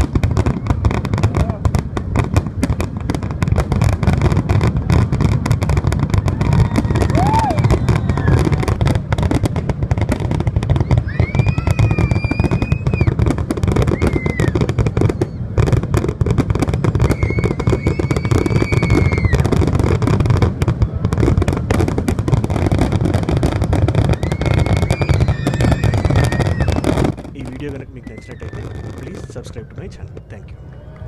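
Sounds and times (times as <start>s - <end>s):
fireworks bursting and crackling: 0.0s - 31.0s
high whistling tones: 10.8s - 13.2s, 24.2s - 27.0s, 27.8s - 31.0s.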